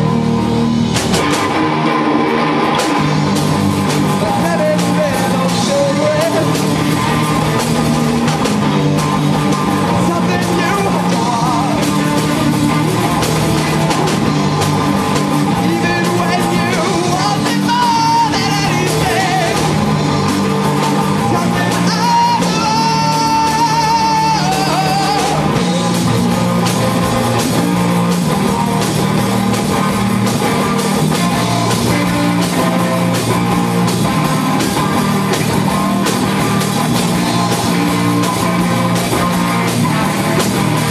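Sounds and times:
drum kit: 0:00.0 - 0:40.9
electric guitar: 0:00.0 - 0:40.9.

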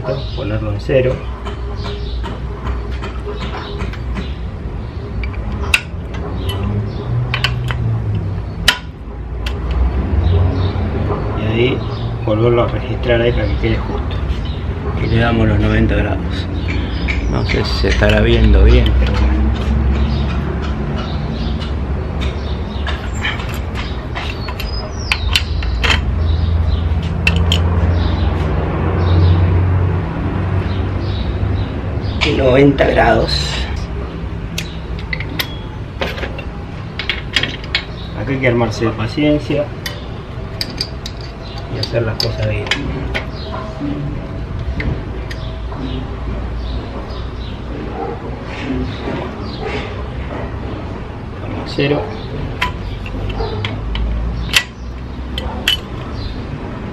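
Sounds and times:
wrench clicks and knocks: 0:18.8 - 0:26.2, 0:27.0 - 0:27.8, 0:40.6 - 0:43.3, 0:52.6 - 0:56.2
metallic clicks of hand tools: 0:27.2 - 0:27.7, 0:52.6 - 0:54.8, 0:55.4 - 0:56.0.

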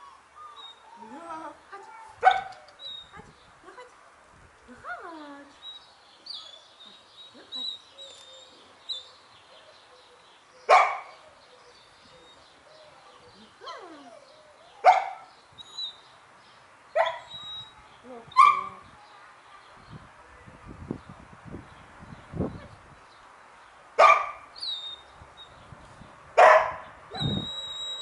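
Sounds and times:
dog barking: 0:02.2 - 0:02.6, 0:10.7 - 0:11.2, 0:14.8 - 0:15.2, 0:24.0 - 0:24.4, 0:26.4 - 0:26.8.

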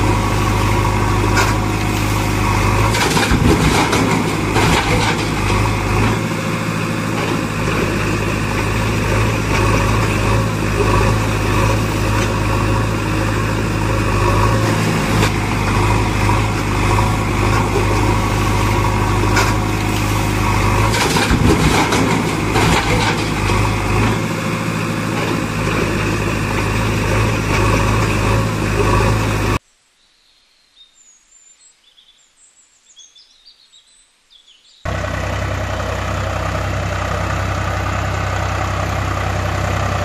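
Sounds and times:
engine droning: 0:00.0 - 0:29.6, 0:34.9 - 0:40.0
faint bird chirps: 0:29.9 - 0:34.9.

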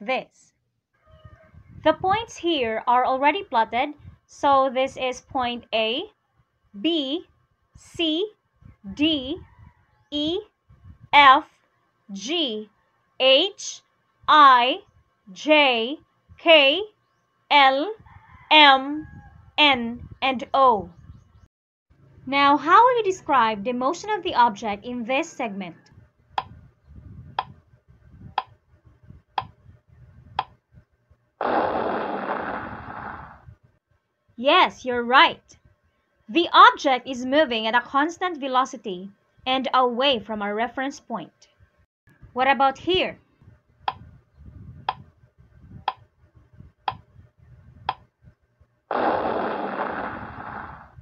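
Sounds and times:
loud burst of noise: 0:31.4 - 0:33.4, 0:48.9 - 0:51.0
loud hissing sound effect: 0:31.4 - 0:33.4, 0:48.9 - 0:50.9.

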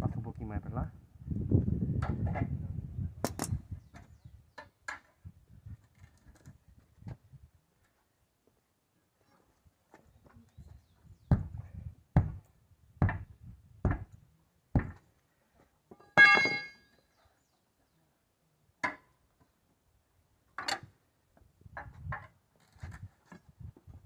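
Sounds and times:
ringing metal clang: 0:16.0 - 0:16.9.

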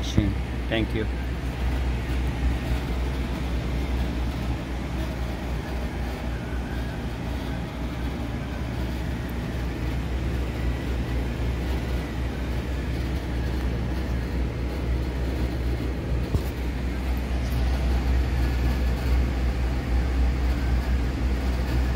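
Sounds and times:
heat pump humming: 0:00.0 - 0:21.9.

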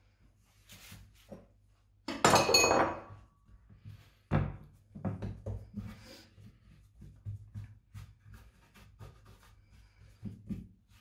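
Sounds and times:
knife clattering on countertop: 0:02.1 - 0:03.1
hands patting dough on wood: 0:03.1 - 0:11.0.

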